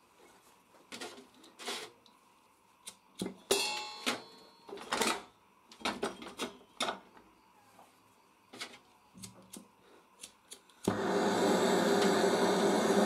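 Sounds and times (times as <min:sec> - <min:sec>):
metallic ring: 0:03.5 - 0:04.8.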